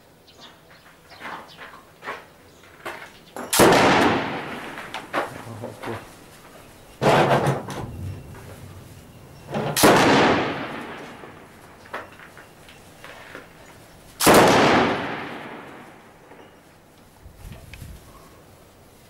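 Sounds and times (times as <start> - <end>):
loud gunshots with long echo: 3.6 - 5.1, 9.5 - 11.8, 14.2 - 16.3.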